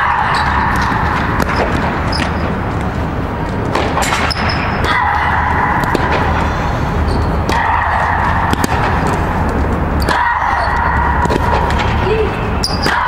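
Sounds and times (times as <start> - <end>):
tennis ball hit and bouncing: 0.0 - 2.5, 7.2 - 12.0
steady loud hum: 0.0 - 13.0.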